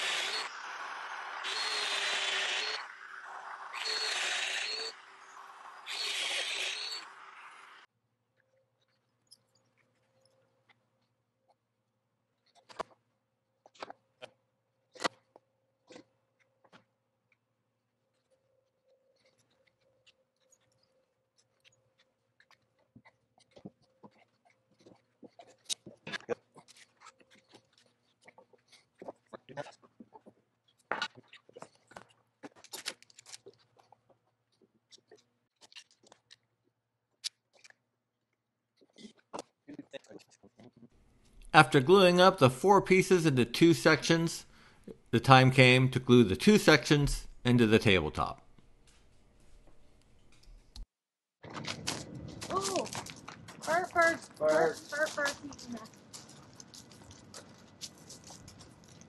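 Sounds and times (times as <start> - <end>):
power tool motor running: 0.0 - 7.8.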